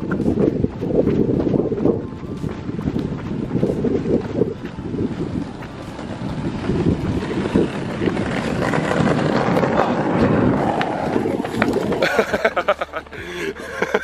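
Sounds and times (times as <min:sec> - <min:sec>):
skateboard wheels rolling on tarmac: 0:00.0 - 0:14.0
wind buffeting microphone: 0:00.0 - 0:14.0.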